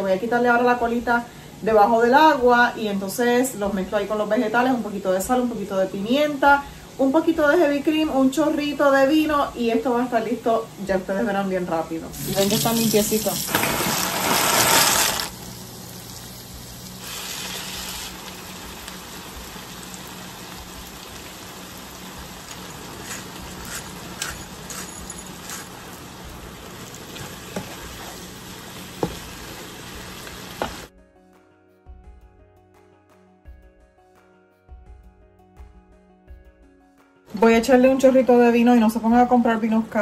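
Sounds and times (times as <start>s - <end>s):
soft music: 0.0s - 13.7s, 30.9s - 40.0s
food sizzling in a pan: 12.1s - 30.9s.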